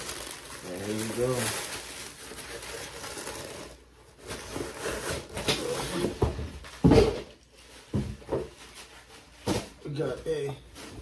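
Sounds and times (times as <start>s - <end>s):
fabric and paper rustling: 0.0s - 6.9s.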